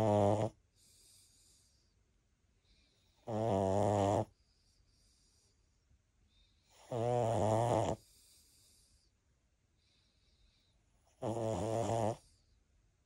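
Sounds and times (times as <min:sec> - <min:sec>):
loud snoring: 0:00.0 - 0:00.6, 0:03.2 - 0:04.3, 0:06.8 - 0:08.0, 0:11.2 - 0:12.2
faint hissing breaths: 0:00.0 - 0:13.0.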